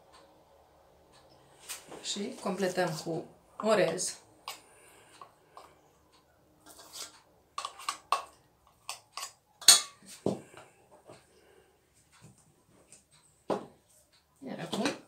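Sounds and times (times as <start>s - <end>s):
metal spoon scraping and tapping: 3.6s - 5.8s, 6.6s - 10.3s.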